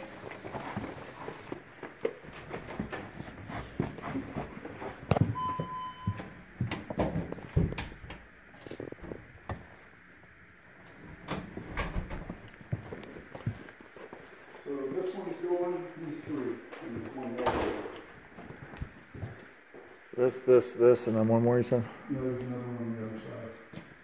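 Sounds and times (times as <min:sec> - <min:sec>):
electronic beep: 0:05.4 - 0:06.3.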